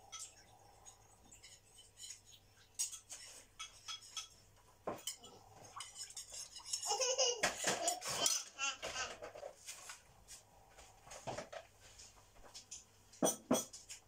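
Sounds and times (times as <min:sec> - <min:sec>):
metal spoon and dishes clinking: 0:00.0 - 0:00.5, 0:01.3 - 0:08.5.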